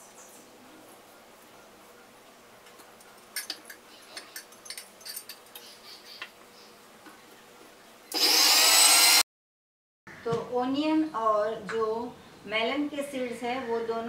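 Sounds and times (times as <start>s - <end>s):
mixer grinder motor whining: 8.1s - 9.2s.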